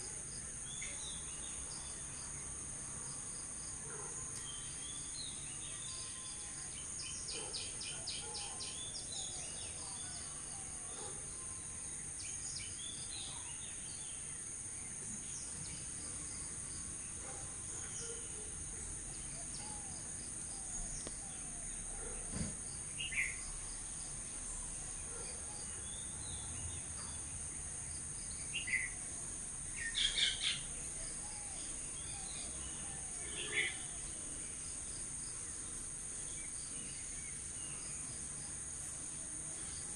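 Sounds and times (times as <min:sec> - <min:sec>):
bird chirps and calls: 0:29.8 - 0:30.7.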